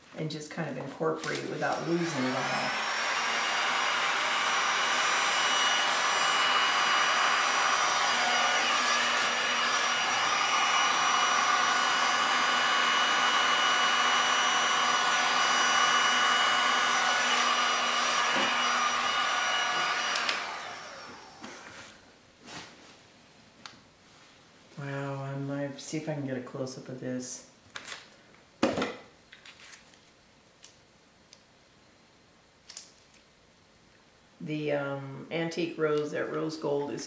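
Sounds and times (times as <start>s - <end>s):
hot-air blower motor whine: 1.6s - 21.8s.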